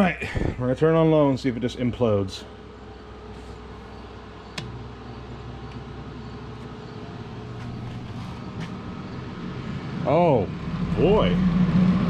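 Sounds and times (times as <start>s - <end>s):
fan motor humming: 0.0s - 12.0s
switch click: 4.5s - 4.8s.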